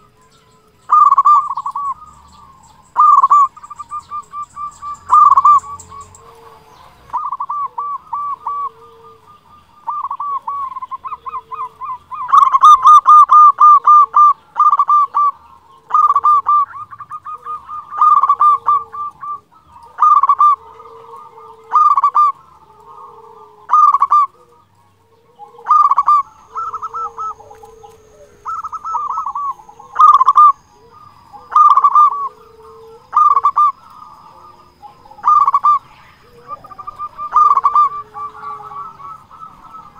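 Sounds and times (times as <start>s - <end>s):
dove cooing: 0.0s - 39.9s.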